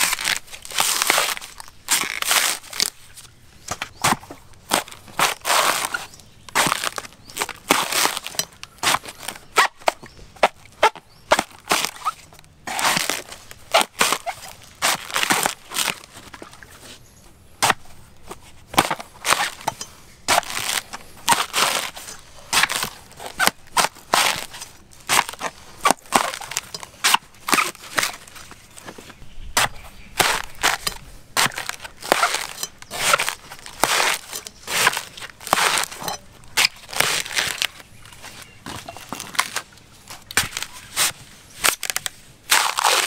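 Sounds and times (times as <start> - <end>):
knife chopping coconut husk: 3.6 - 10.6, 17.6 - 17.8, 18.7 - 28.2, 29.6 - 37.8.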